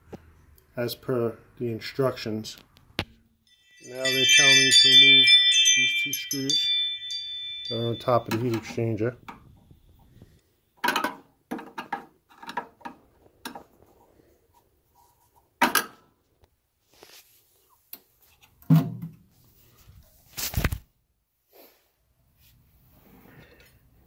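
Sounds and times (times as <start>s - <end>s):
screws clinking on sheet metal: 4.1s - 8.9s.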